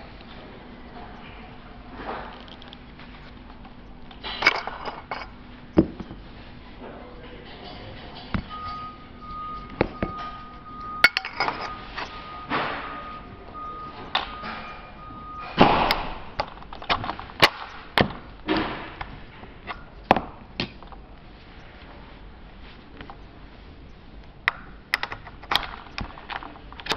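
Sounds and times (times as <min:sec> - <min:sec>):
metal parts clicking and knocking: 0:02.3 - 0:06.2, 0:09.6 - 0:18.1, 0:24.5 - 0:26.9.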